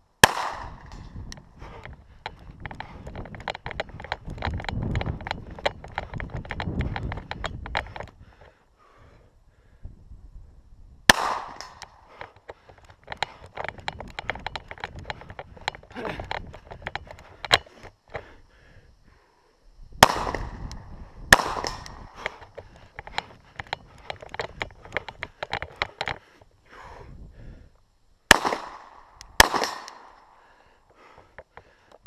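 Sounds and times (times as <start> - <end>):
pistol shots: 0.2 - 1.1, 11.1 - 12.0, 20.0 - 20.6, 21.3 - 22.2, 28.3 - 30.2.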